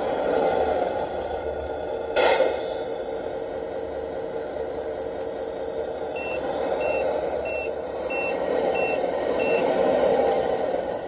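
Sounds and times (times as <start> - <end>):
mechanical running sound: 3.0 - 11.0
reversing beeper: 6.2 - 9.6.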